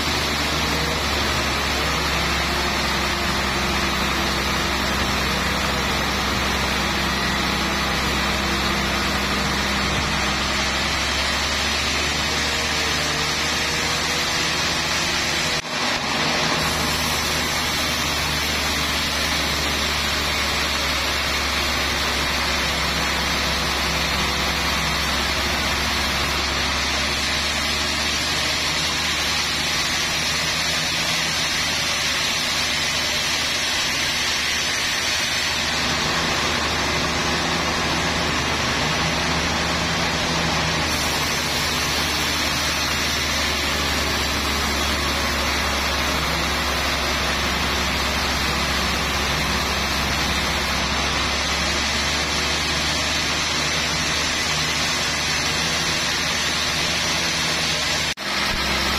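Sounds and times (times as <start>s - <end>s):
band saw cutting log: 0.0s - 58.9s.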